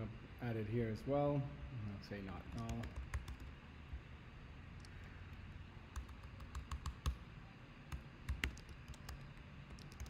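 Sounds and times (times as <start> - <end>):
keyboard key clicks: 6.0 - 7.2.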